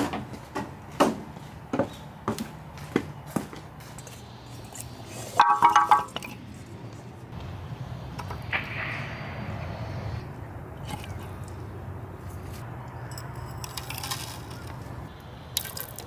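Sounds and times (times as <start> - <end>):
footsteps of sandals: 0.0 - 4.3
sticks clattering into metal pot: 5.4 - 6.3.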